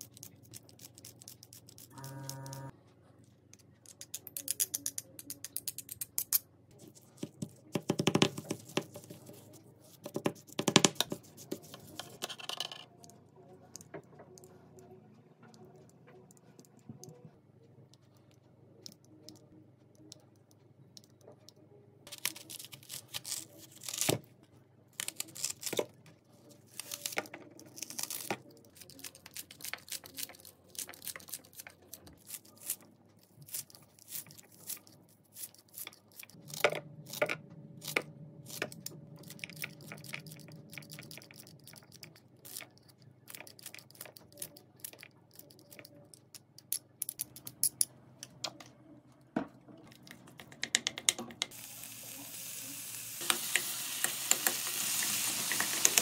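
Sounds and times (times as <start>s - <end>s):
scissors snipping onion: 22.1s - 24.2s.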